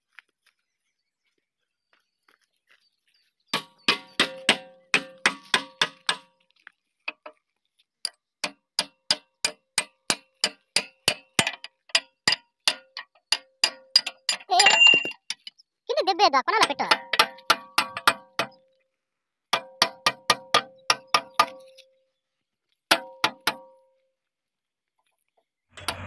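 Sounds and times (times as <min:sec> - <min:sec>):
hammer clanging on steel: 0:03.6 - 0:06.3, 0:08.4 - 0:15.5, 0:16.7 - 0:18.6.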